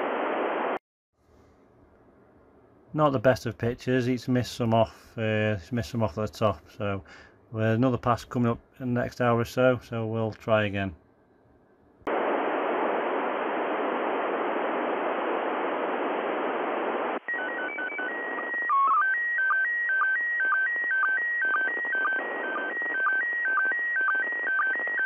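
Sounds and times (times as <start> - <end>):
radio receiver hiss: 0.0 - 0.8, 12.1 - 17.2.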